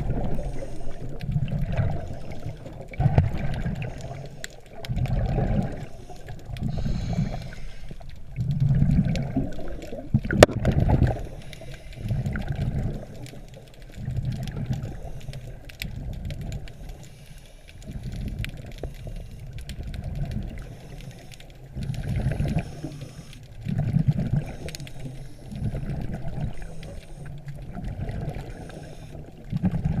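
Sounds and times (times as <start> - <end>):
muffled underwater water rushing: 0.0 - 30.0.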